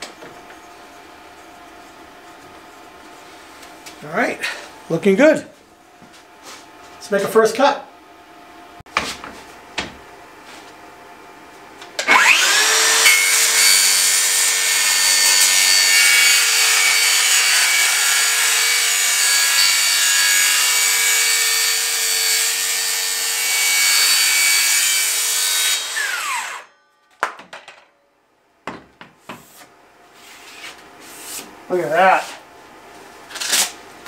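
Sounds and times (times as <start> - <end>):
circular saw cutting board: 12.0 - 26.8.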